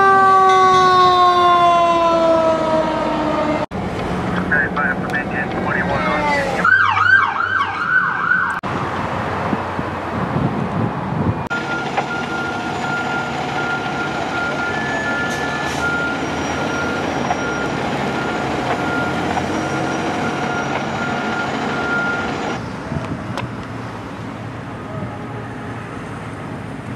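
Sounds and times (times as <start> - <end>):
diesel engine running: 11.5 - 23.2.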